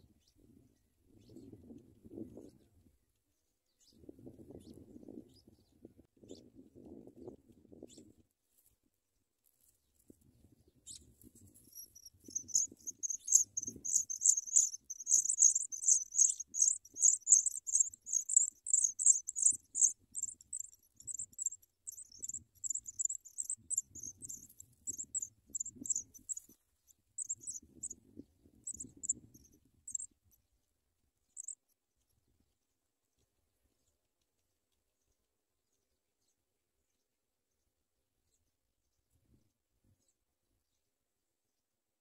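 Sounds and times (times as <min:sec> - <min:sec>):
nestlings cheeping: 0:11.7 - 0:26.4, 0:27.2 - 0:27.6, 0:29.9 - 0:30.1.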